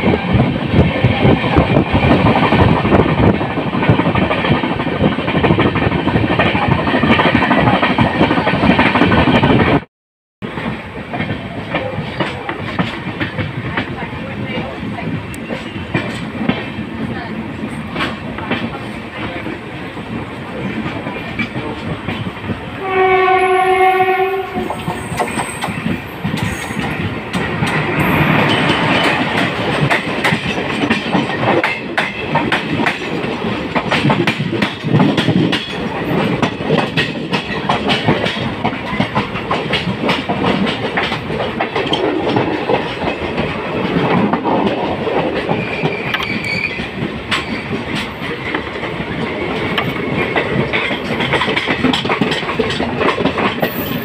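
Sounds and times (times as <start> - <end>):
train rumbling: 0.0 - 54.0
wheels clacking over rail joints: 10.5 - 54.0
locomotive horn: 22.8 - 25.2.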